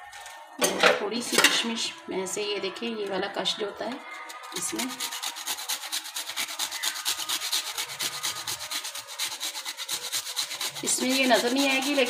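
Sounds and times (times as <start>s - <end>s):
metal grater scraping: 4.2s - 12.0s.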